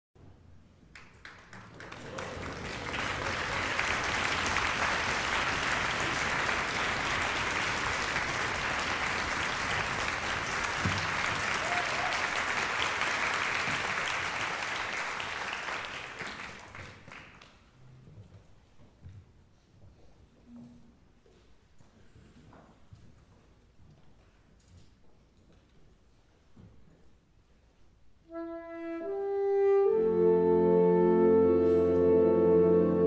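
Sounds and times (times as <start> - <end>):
audience applauding: 0.9 - 17.6.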